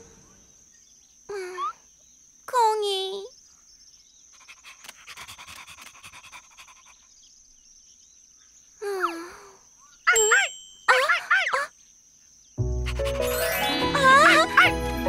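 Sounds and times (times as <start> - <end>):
cartoon puppy panting: 4.4 - 7.1, 12.8 - 14.7.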